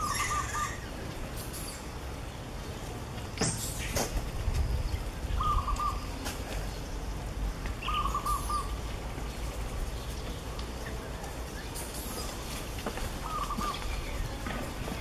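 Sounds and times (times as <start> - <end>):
bird hooting: 0.0 - 0.9, 5.4 - 6.1, 7.8 - 8.8, 13.2 - 13.8.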